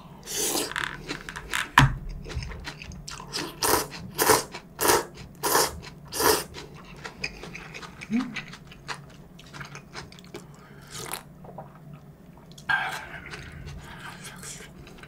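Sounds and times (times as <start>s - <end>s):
person slurping noodles: 0.2s - 0.9s, 3.3s - 6.5s.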